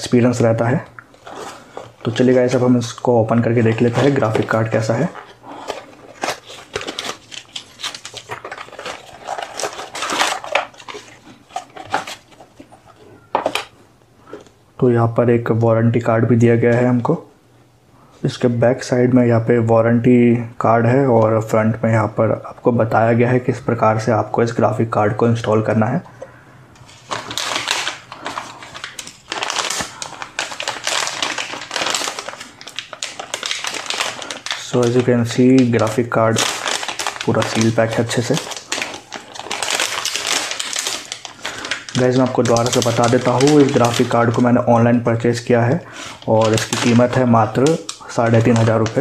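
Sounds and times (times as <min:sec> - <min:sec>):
plastic bag crinkling: 0:00.0 - 0:13.8, 0:26.8 - 0:49.0.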